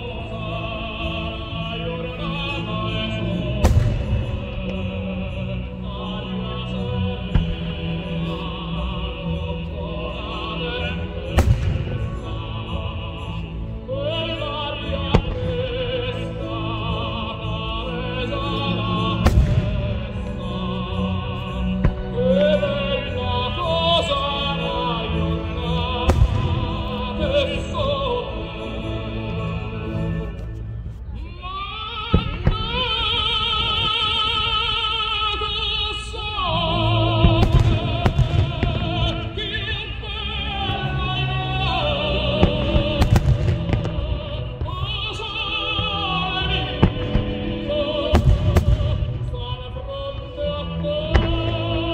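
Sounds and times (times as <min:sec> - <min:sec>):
operatic singing with orchestra: 0:00.0 - 0:51.9
firework bangs: 0:37.2 - 0:39.3, 0:42.4 - 0:45.2, 0:46.8 - 0:49.4.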